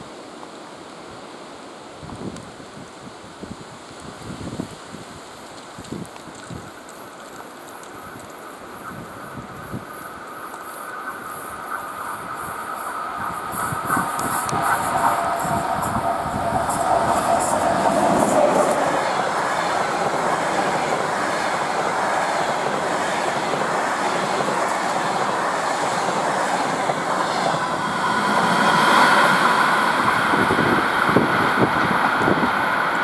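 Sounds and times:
train wheels clattering on rails: 5.8 - 33.0
high-pitched train whine: 7.1 - 33.0.

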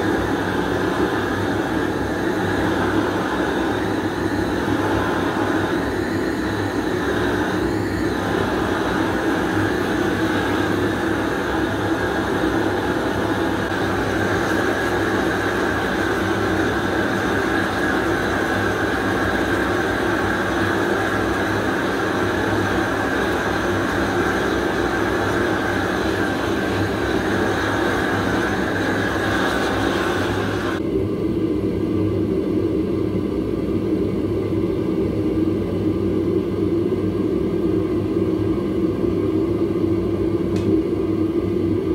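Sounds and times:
gas burner hissing: 0.0 - 30.9
burner low rumble: 0.0 - 41.9.

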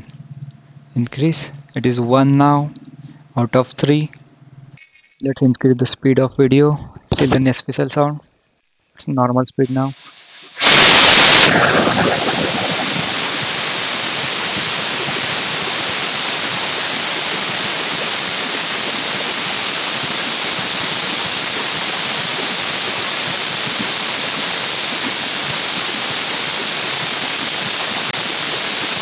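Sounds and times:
pressure cooker hissing: 9.7 - 29.0.

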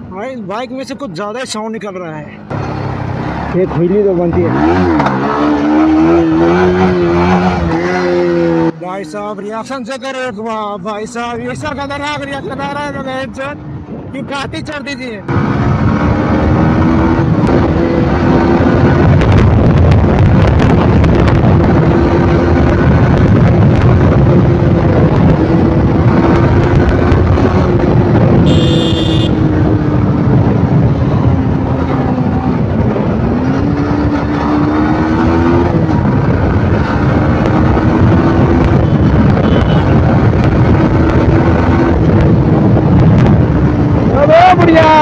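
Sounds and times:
wind rushing over microphone: 11.2 - 45.0.

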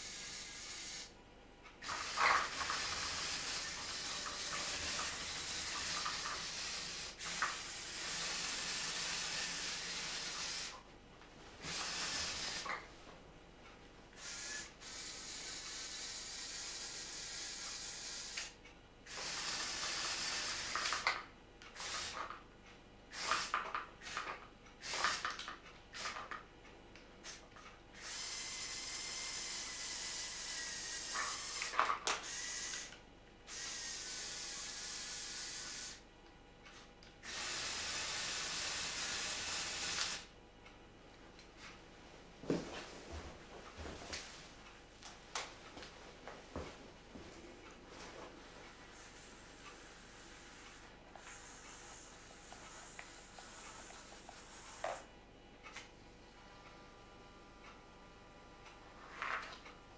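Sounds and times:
toy electric motors whirring: 0.0 - 1.1, 1.8 - 10.8, 11.6 - 12.9, 14.2 - 22.4, 23.1 - 26.4, 28.0 - 36.0, 37.2 - 40.3, 48.7 - 55.1.

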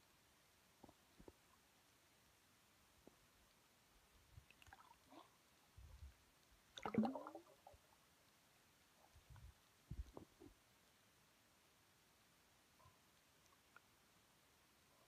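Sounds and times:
burst of bubbles underwater: 6.8 - 7.7.

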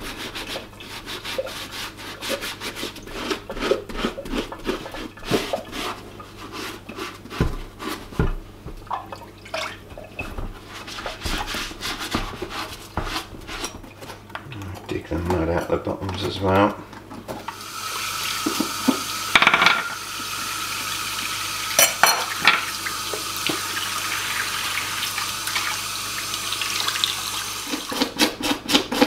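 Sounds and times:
sponge scrubbing wet leather boot: 0.0 - 8.3.

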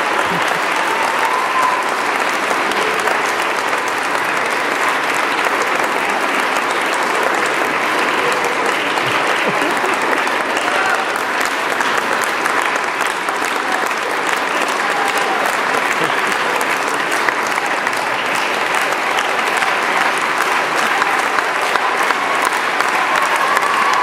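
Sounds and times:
audience applauding: 0.0 - 24.0
faint voices: 0.0 - 24.0.

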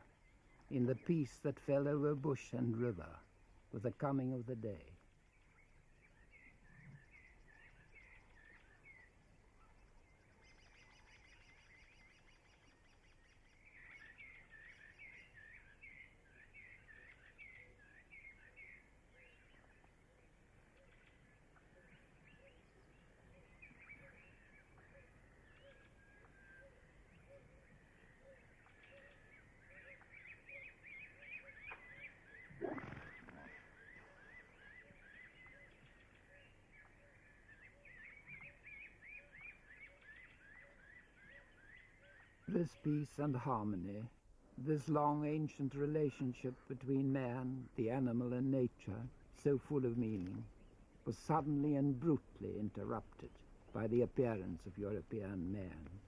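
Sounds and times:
faint bird calls: 4.6 - 44.0.

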